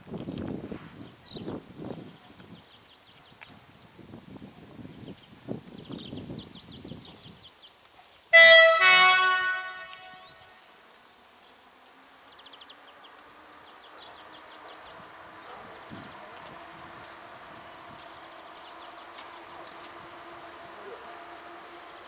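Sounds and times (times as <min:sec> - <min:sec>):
train horn blast: 0:08.3 - 0:10.6.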